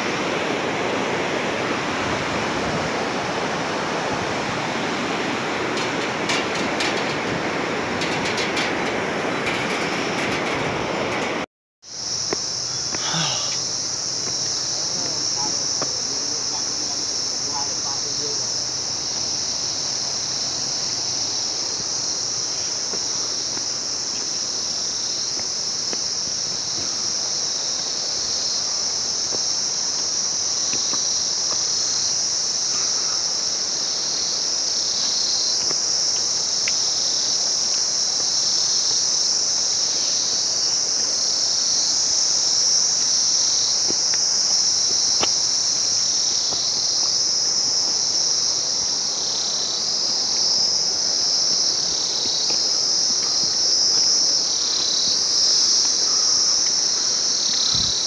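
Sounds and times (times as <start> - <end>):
insects chorus shrilling: 11.8 - 58.0.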